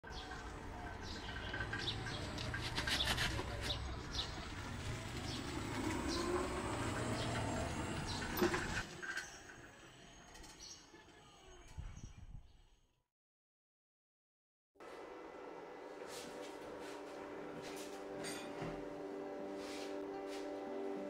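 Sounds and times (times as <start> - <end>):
low outdoor rumble: 0.1 - 8.8.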